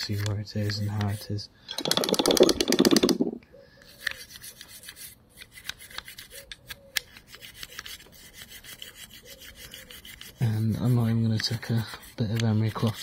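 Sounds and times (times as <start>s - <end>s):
brush scrubbing metal: 0.0s - 1.3s, 7.1s - 13.0s
clicks and scrapes of handling: 0.0s - 3.2s, 3.8s - 13.0s.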